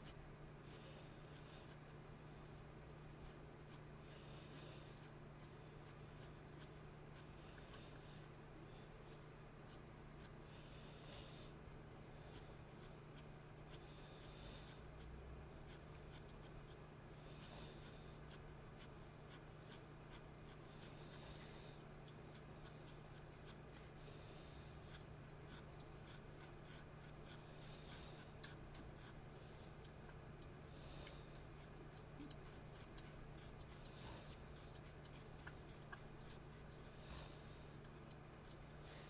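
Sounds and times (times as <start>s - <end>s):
steady low hum: 0.0s - 39.0s
pen scratching on paper: 24.8s - 29.2s.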